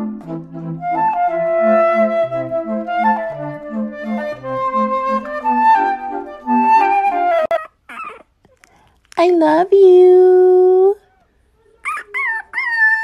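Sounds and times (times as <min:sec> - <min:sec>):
flute-like woodwind melody: 0:00.0 - 0:07.6.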